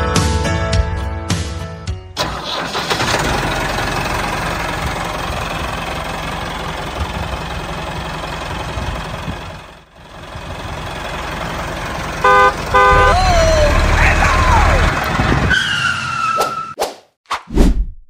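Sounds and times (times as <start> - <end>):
tractor engine running: 2.2 - 15.5
horn beep: 12.2 - 13.4.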